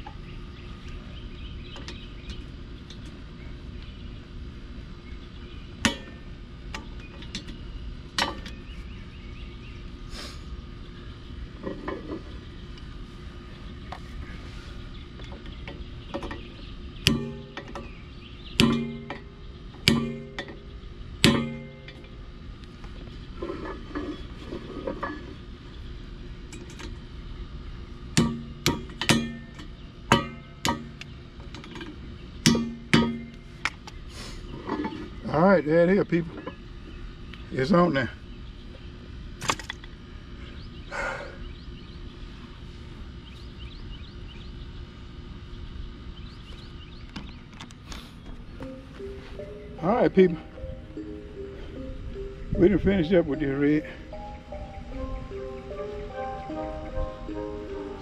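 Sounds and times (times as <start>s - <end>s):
outdoor background noise: 0.0s - 58.0s
hammer striking ringing steel: 5.8s - 6.2s, 17.0s - 17.9s, 18.6s - 20.6s, 21.2s - 22.1s, 28.2s - 31.0s, 32.4s - 33.4s.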